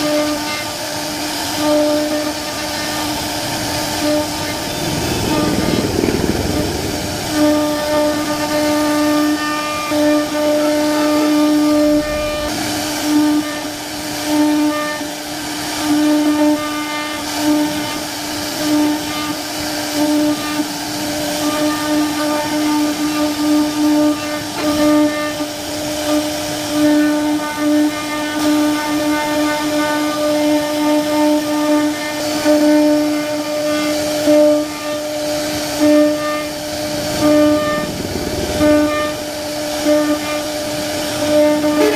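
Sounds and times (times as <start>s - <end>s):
cnc router spindle whine: 0.0s - 41.9s
hiss of wood cutting: 0.0s - 41.9s.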